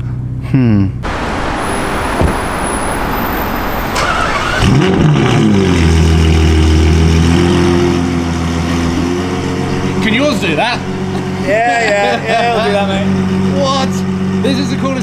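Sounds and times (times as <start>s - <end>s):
car engine starting and revving: 1.0s - 15.0s
loud engine high idle: 8.1s - 15.0s.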